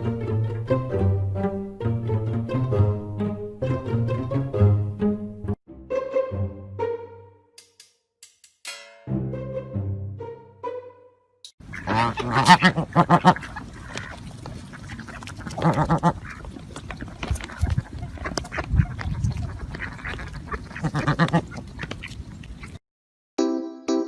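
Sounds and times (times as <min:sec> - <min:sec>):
ducks quacking: 0:11.6 - 0:22.8.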